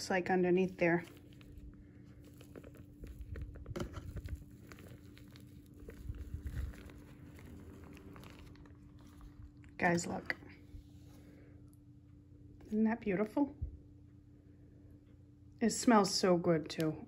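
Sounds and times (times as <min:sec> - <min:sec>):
low steady hum: 0:00.0 - 0:17.0
paper rustling and crinkling: 0:00.6 - 0:11.3.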